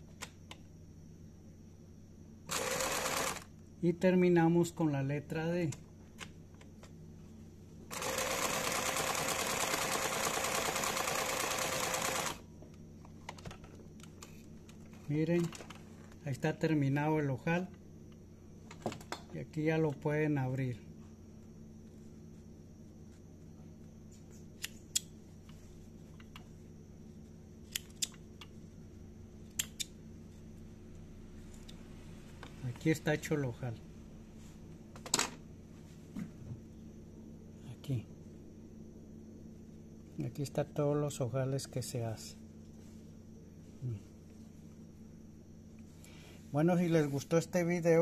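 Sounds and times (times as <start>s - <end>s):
sewing machine stitching: 2.5s - 3.5s, 7.9s - 12.4s.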